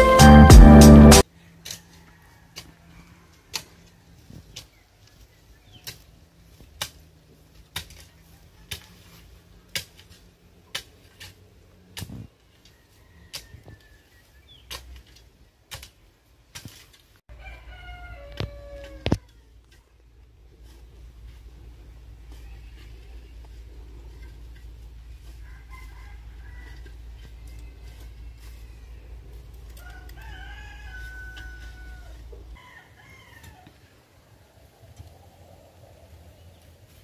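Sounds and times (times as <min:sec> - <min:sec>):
rooster crowing: 0:01.8 - 0:04.0, 0:17.3 - 0:19.3, 0:25.2 - 0:29.0, 0:29.7 - 0:34.0.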